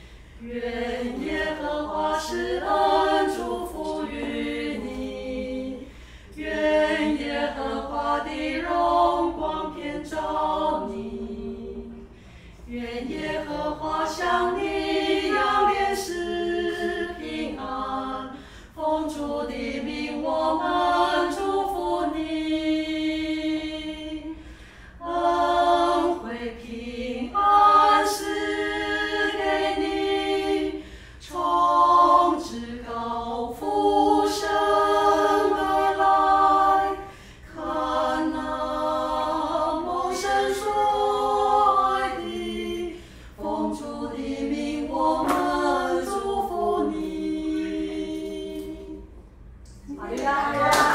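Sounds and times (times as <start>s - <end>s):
women singing unaccompanied: 0.4s - 12.0s, 12.7s - 24.3s, 25.0s - 49.1s, 49.8s - 50.9s.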